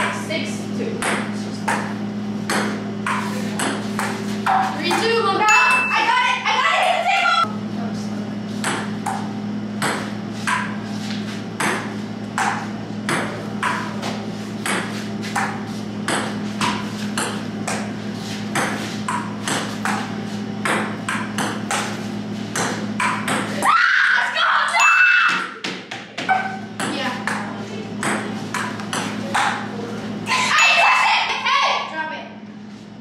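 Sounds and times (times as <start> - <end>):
steady low hum: 0.0 - 33.0
ping-pong ball clicking off paddles: 24.9 - 29.6.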